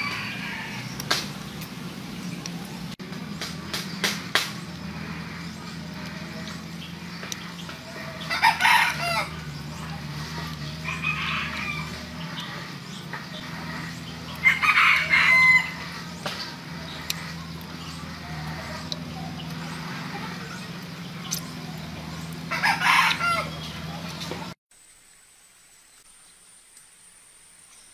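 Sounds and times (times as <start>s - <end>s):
faint rooster call: 0.0s - 1.0s, 10.8s - 12.1s, 14.4s - 16.0s
rooster crowing: 0.0s - 1.0s, 7.8s - 9.5s, 10.4s - 12.7s, 13.8s - 16.2s, 22.5s - 23.7s.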